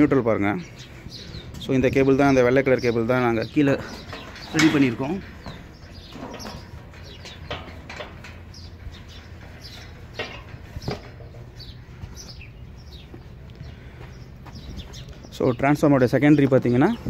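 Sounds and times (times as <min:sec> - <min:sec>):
small birds chirping: 0:00.0 - 0:17.0
steady low hum: 0:03.2 - 0:15.4.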